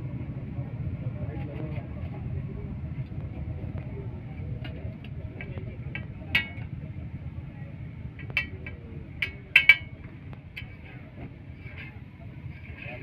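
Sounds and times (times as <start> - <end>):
low street rumble: 0.0 - 13.0
metal spatula clinking on griddle: 5.4 - 6.8, 8.2 - 13.0.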